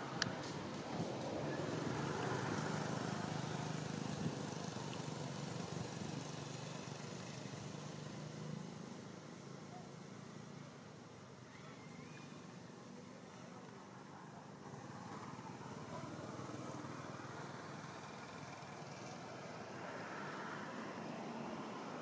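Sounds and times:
background noise: 0.0s - 22.0s.

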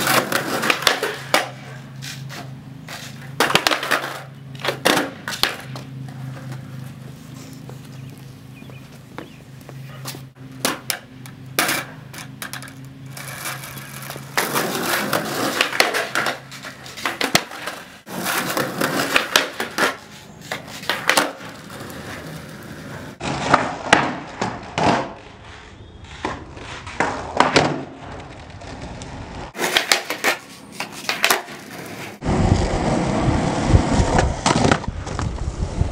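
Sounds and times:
skateboard clacks and slaps: 0.0s - 1.7s, 2.3s - 6.6s, 13.4s - 25.4s, 26.2s - 32.2s
skateboard wheels rolling on concrete: 0.0s - 35.9s.

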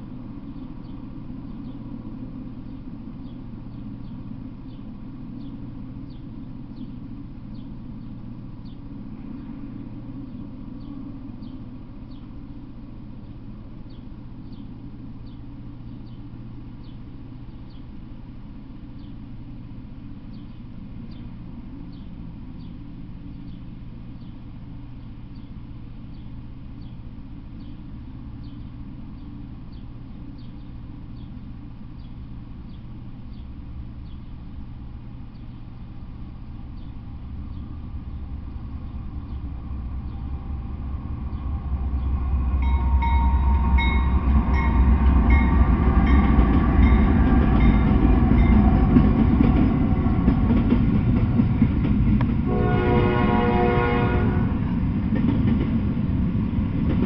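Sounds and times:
freight train rumbling past: 0.0s - 57.0s
train horn: 42.6s - 45.4s, 52.5s - 54.8s
high ringing tones: 42.6s - 48.7s.

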